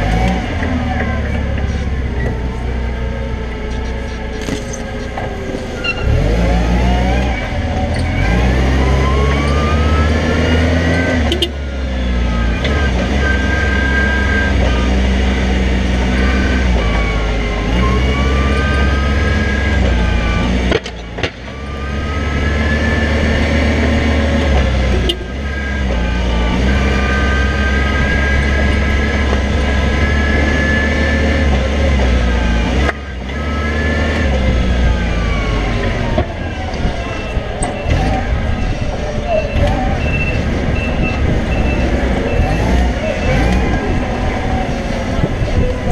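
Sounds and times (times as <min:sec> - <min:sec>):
forklift engine whining: 0:00.0 - 0:45.9.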